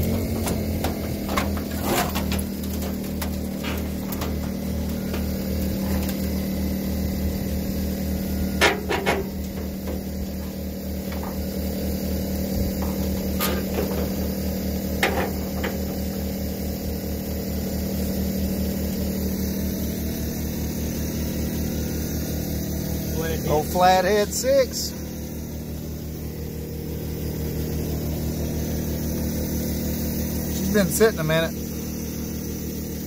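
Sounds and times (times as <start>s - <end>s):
motor humming with throbbing pulse: 0.0s - 33.0s.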